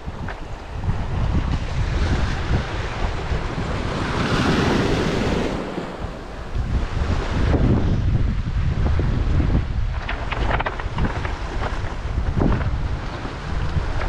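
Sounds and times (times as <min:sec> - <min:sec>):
waves washing up a cobble shore: 0:00.0 - 0:14.0
wind buffeting microphone: 0:00.0 - 0:14.0.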